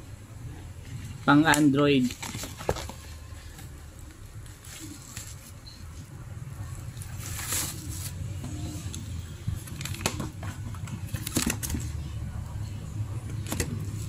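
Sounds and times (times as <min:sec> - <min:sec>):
steady low hum: 0:00.0 - 0:14.0
bubble wrap rustling and crinkling: 0:00.9 - 0:06.1, 0:06.8 - 0:08.4.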